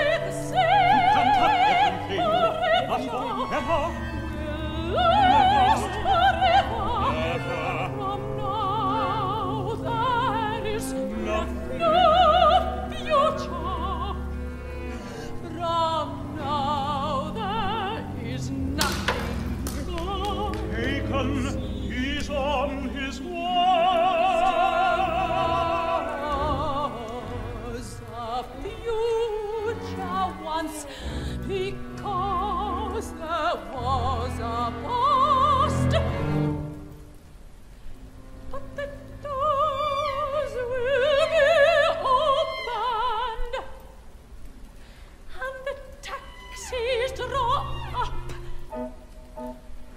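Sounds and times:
operatic voice singing: 0.0s - 14.4s, 15.0s - 36.3s
instrumental accompaniment: 0.5s - 37.3s.

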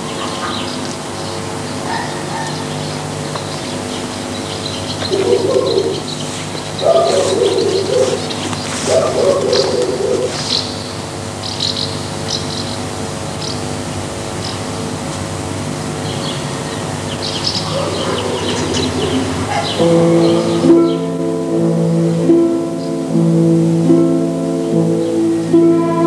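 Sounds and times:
pigeons cooing: 0.0s - 11.4s, 15.8s - 21.2s
small birds chirping: 0.0s - 14.8s, 15.9s - 21.2s
steady hum: 0.0s - 26.0s.

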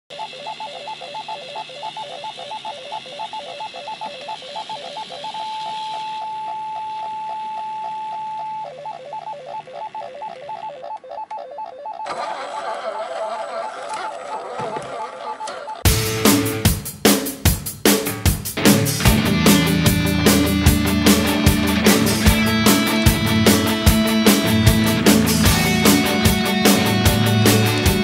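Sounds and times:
electronic ringing tone: 0.1s - 13.3s
music: 15.9s - 28.0s.

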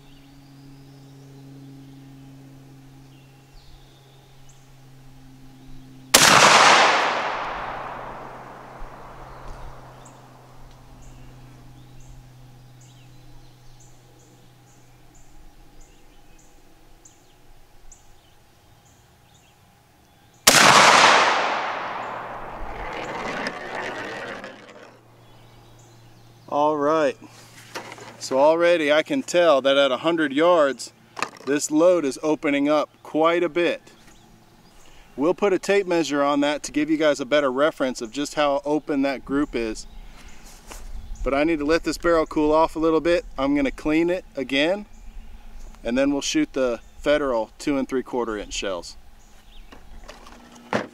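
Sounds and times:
shotgun shots with echo: 6.2s - 10.0s, 20.5s - 23.3s.

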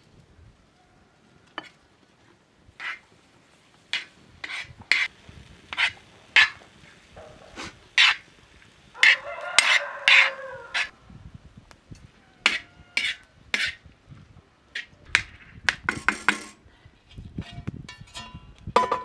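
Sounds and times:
metal spoon scraping a pan: 2.8s - 3.0s, 3.9s - 5.1s, 5.7s - 8.2s, 9.0s - 10.9s, 12.4s - 13.8s, 17.4s - 18.5s.

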